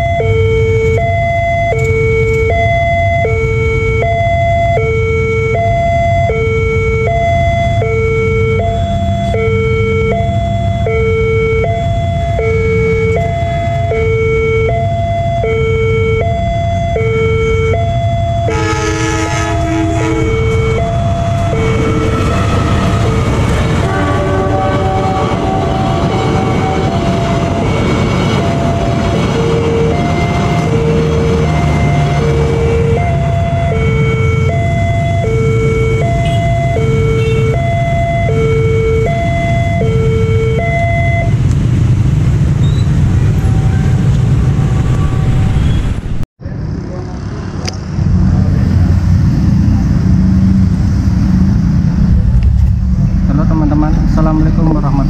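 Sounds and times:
level crossing two-tone alarm: 0.0s - 23.5s, 24.5s - 41.4s
train horn: 18.5s - 20.8s, 21.6s - 27.8s
train rumbling past: 18.5s - 35.3s, 41.2s - 55.0s.

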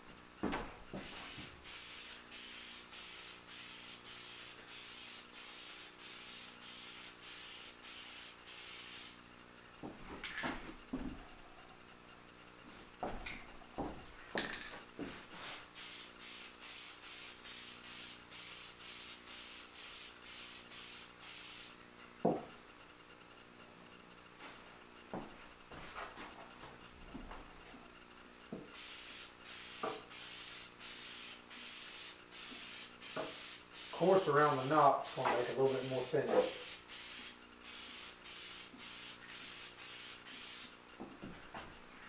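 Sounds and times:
aerosol spray bursts: 1.0s - 9.2s, 15.4s - 21.8s, 28.7s - 40.8s.

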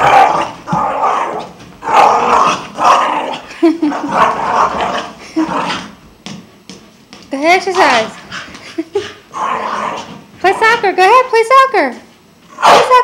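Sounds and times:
dog growling in play: 0.0s - 6.0s, 7.7s - 10.3s.

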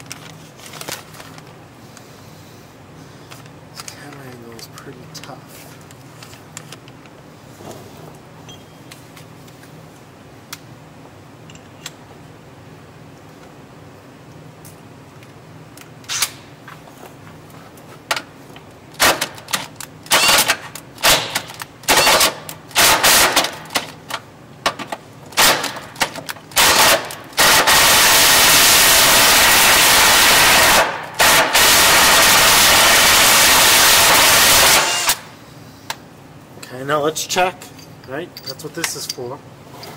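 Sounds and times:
cordless drill boring into steel: 33.4s - 35.2s.

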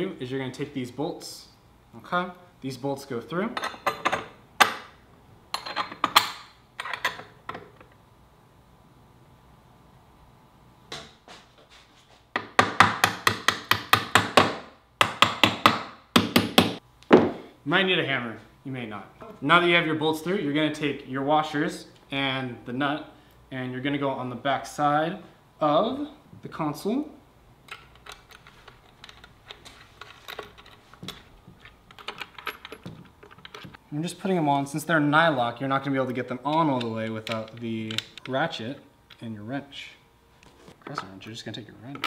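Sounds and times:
metallic clicks of nuts and washers: 5.6s - 8.0s, 27.6s - 33.8s, 36.5s - 38.4s.

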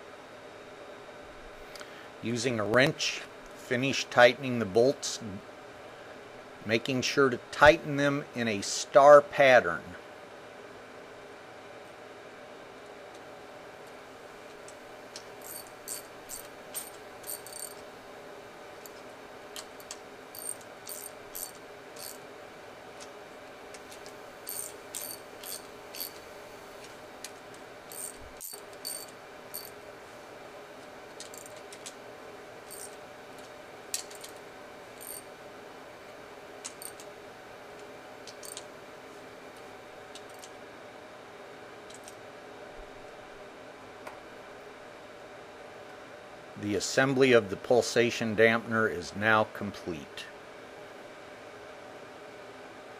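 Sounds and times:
ratchet wrench clicking: 15.4s - 17.8s, 19.6s - 22.2s, 24.5s - 26.2s, 27.9s - 29.8s, 31.2s - 31.9s, 32.7s - 33.0s, 35.0s - 35.2s, 36.6s - 37.0s, 38.3s - 38.6s.

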